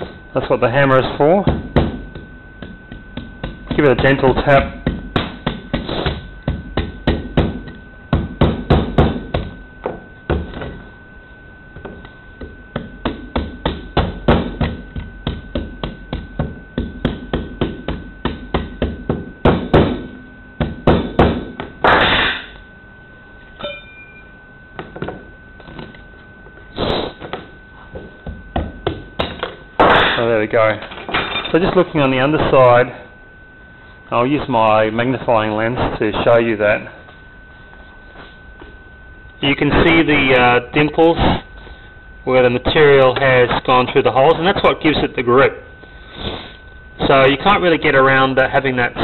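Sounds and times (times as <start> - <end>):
faint high tone: 23.6 - 24.3.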